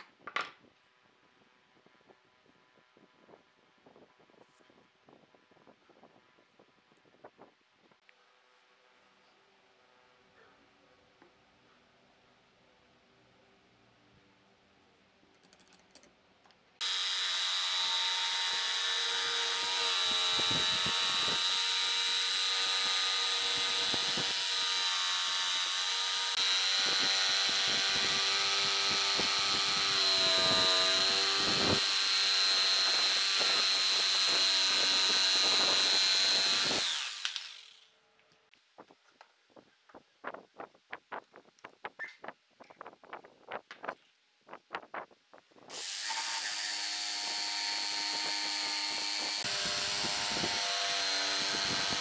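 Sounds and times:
jigsaw cutting wood: 0:16.8 - 0:37.9, 0:45.7 - 0:52.0.

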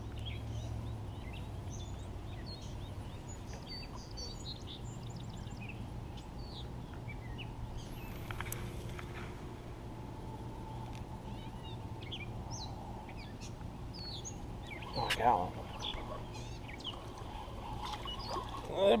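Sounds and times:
small birds chirping: 0:00.0 - 0:09.0, 0:10.5 - 0:19.0
steady low rumble: 0:00.0 - 0:18.8.

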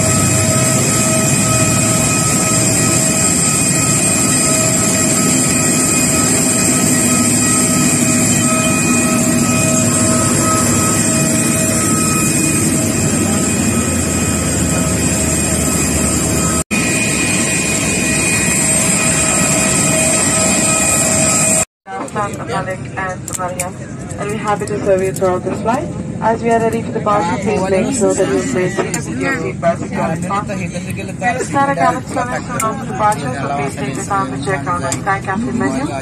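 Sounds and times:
jet engine rush: 0:00.0 - 0:21.6
high whining tones: 0:00.0 - 0:21.7.

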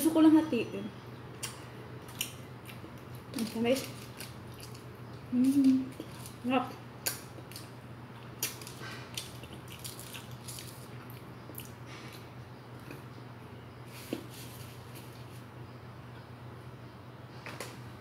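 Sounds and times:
low steady hum: 0:00.0 - 0:18.0
person chewing food: 0:01.3 - 0:06.4, 0:07.0 - 0:13.1.

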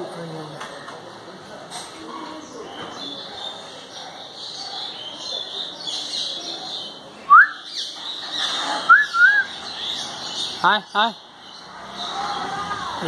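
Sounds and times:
small birds chirping: 0:02.1 - 0:13.0
loud clear whistles: 0:07.3 - 0:07.7, 0:08.9 - 0:09.5.

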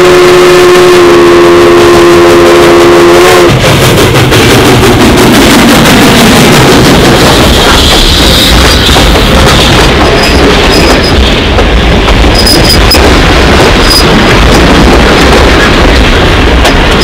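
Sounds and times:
train wheels rumbling on rails: 0:01.7 - 0:17.0.

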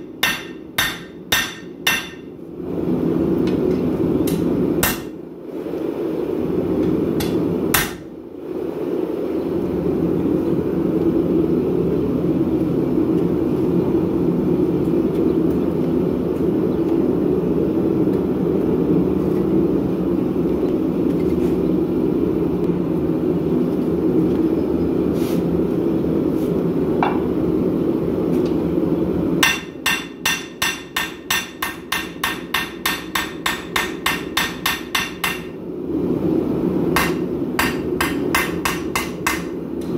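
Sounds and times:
hammer blows on anvil: 0:00.0 - 0:02.3.

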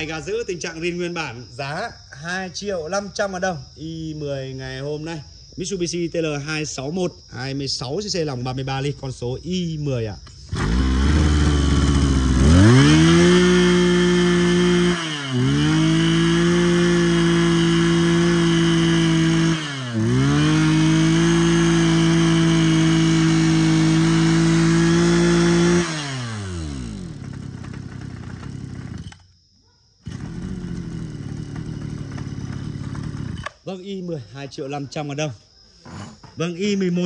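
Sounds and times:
brush cutter engine revving: 0:10.3 - 0:29.3, 0:30.0 - 0:33.7.

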